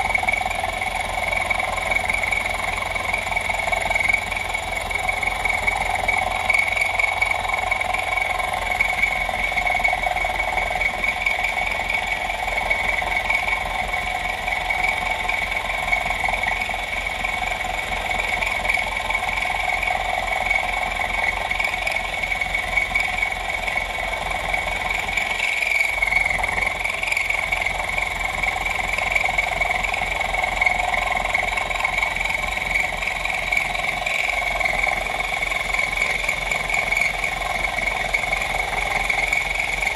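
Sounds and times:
mill motor whining: 0:10.2 - 0:39.9.

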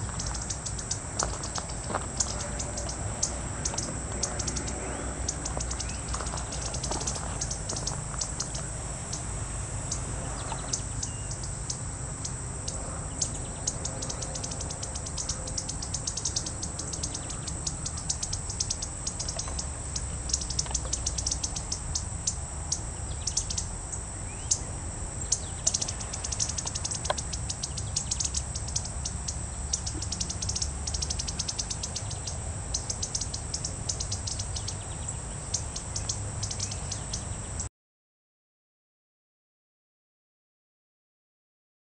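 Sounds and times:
high-pitched insect buzz: 0:00.0 - 0:37.7
bird singing high quick phrases: 0:09.9 - 0:23.7, 0:24.3 - 0:37.7.

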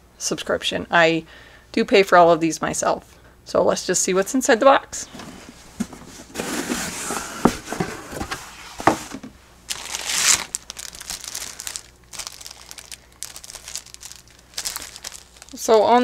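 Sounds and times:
paper packaging crinkling: 0:07.7 - 0:16.0.

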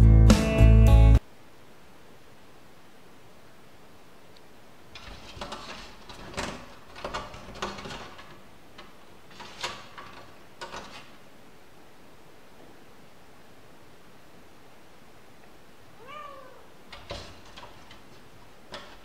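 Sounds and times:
metal door handle rattling: 0:05.0 - 0:11.2, 0:16.9 - 0:19.0.

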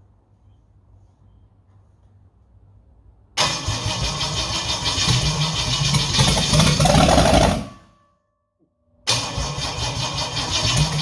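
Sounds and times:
open-exhaust engine running: 0:03.6 - 0:07.8.

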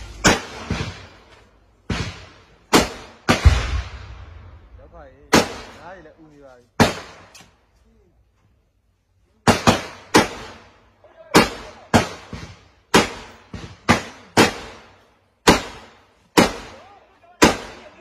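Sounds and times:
rifle gunshots with echo: 0:00.0 - 0:05.8, 0:09.4 - 0:10.7, 0:11.3 - 0:18.0.

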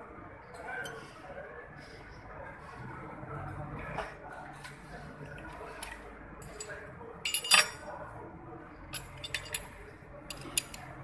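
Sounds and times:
metal tools clinking on engine: 0:06.4 - 0:07.9, 0:08.9 - 0:10.9.

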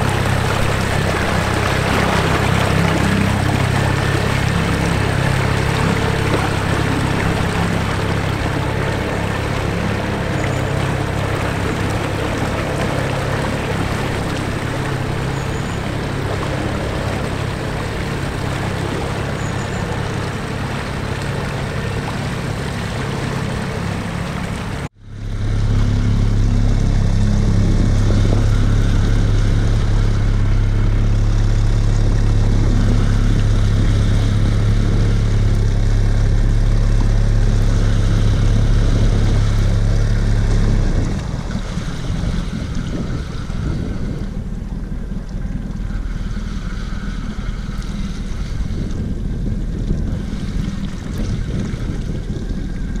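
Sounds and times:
motor humming: 0:00.0 - 0:53.0
wind noise on microphone: 0:00.0 - 0:53.0.

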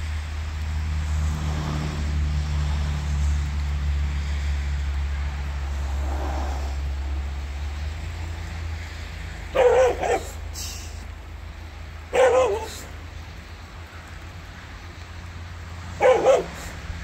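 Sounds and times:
dog barking: 0:09.5 - 0:10.5, 0:12.1 - 0:13.0, 0:16.0 - 0:16.8.

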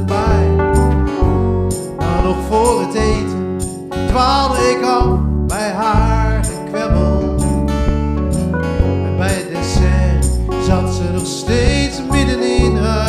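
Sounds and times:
man singing: 0:00.0 - 0:00.9, 0:01.9 - 0:07.7, 0:09.0 - 0:13.0
electric bass: 0:00.0 - 0:13.0
keyboard: 0:00.0 - 0:13.0
strummed acoustic guitar: 0:00.0 - 0:13.0.

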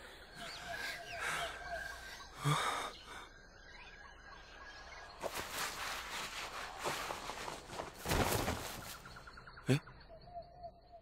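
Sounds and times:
forest ambience: 0:00.0 - 0:11.0
small birds chirping: 0:00.0 - 0:11.0.

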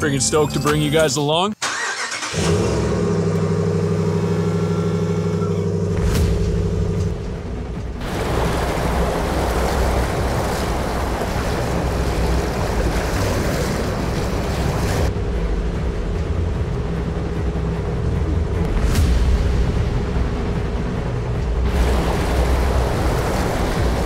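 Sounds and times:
whitewater rapids rushing: 0:08.0 - 0:15.1, 0:21.7 - 0:24.0.

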